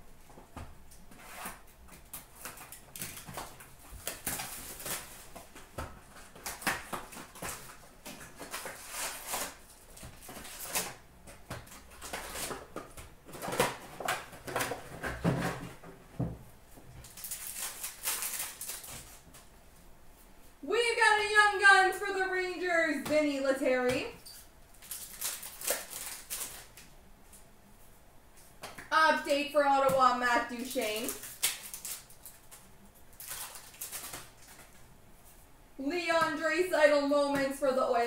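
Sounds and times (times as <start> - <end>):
foil wrappers crinkling and tearing: 1.2 - 15.2, 17.0 - 19.5, 24.3 - 26.9, 30.5 - 34.8
cards rustling: 17.0 - 19.3, 24.7 - 26.8.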